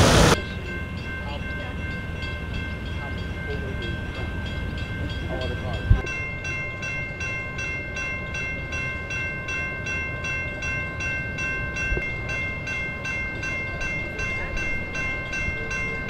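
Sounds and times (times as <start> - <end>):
crossing warning bell ringing: 0.0 - 16.0
train rumble: 0.0 - 16.0.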